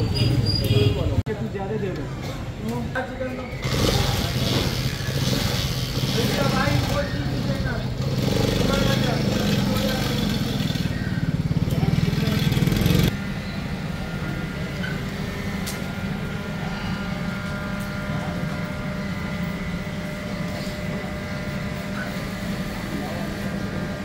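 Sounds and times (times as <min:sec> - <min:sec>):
steady mechanical hum: 0:00.0 - 0:24.0
motorcycle engine running: 0:03.6 - 0:14.8.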